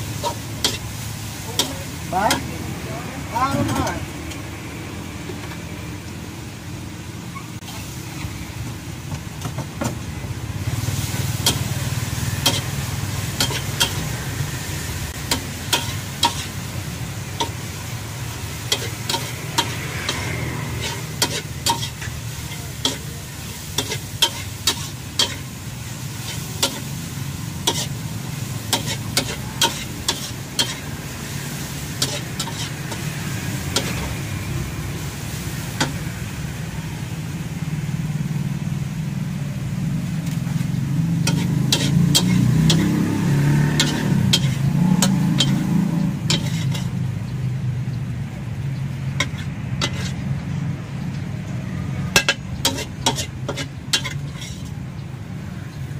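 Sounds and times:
food sizzling: 0.0s - 55.9s
metal spatula clanking on wok: 13.3s - 14.0s, 15.2s - 16.5s, 18.7s - 23.1s, 28.7s - 30.8s, 41.2s - 42.9s, 43.8s - 45.6s, 46.3s - 47.0s, 49.2s - 50.2s, 52.1s - 54.8s.

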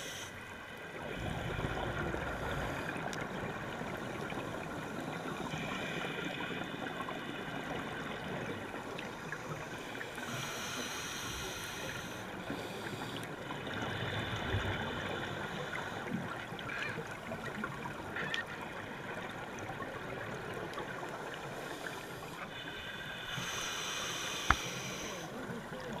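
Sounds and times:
diver's regulator breathing: 0.0s - 0.5s, 9.5s - 16.2s, 21.4s - 25.5s
watery background: 0.0s - 26.0s.

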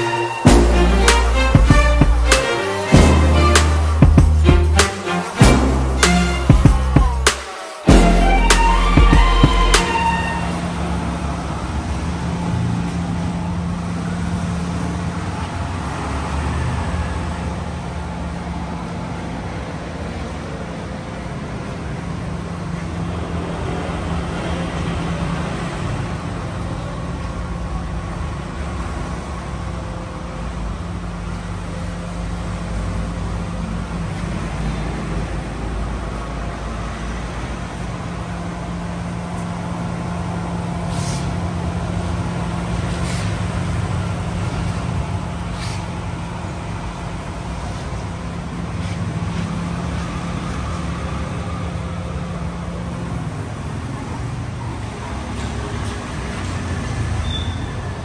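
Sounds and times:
car engine and road noise: 0.0s - 58.0s.

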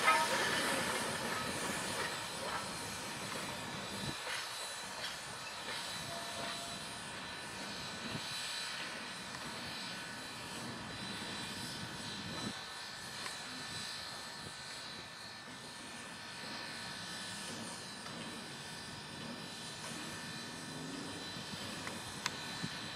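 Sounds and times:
steam locomotive hissing and rumbling: 0.0s - 22.9s.

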